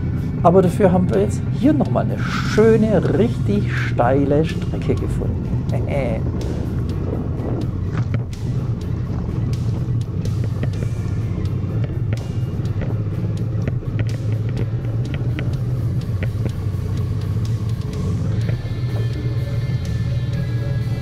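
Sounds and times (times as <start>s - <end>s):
motorcycle engine rumbling: 0.0s - 21.0s.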